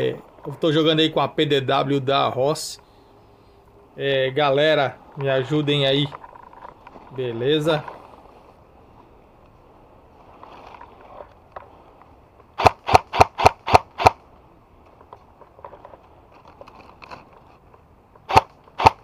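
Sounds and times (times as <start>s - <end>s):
airsoft gun shots: 12.6s - 14.2s, 18.3s - 19.0s.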